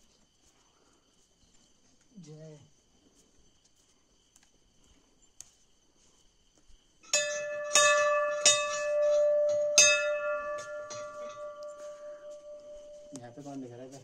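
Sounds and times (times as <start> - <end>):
brass bell clanging: 7.1 - 13.2.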